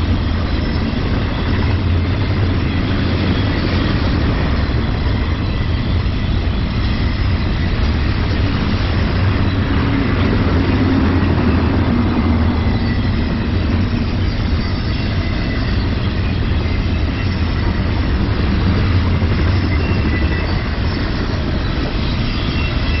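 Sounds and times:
high wheel squealing: 0.0 - 23.0
train wheels rumbling on rail: 0.0 - 23.0.

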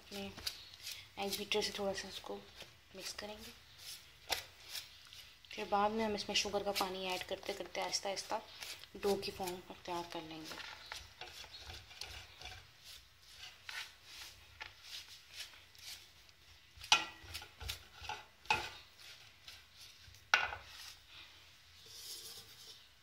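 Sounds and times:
egg beater scraping a metal bowl: 3.0 - 16.2, 16.8 - 20.0, 21.8 - 22.9.

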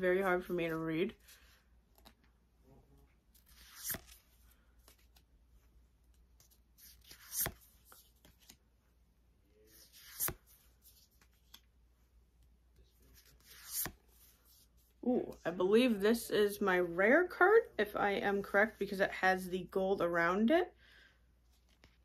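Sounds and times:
faint paper rustling: 0.4 - 9.0, 9.6 - 15.0, 21.4 - 22.0
card swishing off a stack: 3.4 - 5.1, 6.4 - 8.6, 9.8 - 11.6.

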